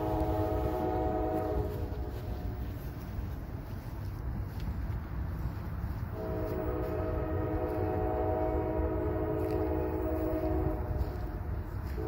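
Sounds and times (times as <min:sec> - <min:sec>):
locomotive air horn blast: 0:00.0 - 0:03.0, 0:06.1 - 0:12.0
train rumble: 0:00.0 - 0:12.0.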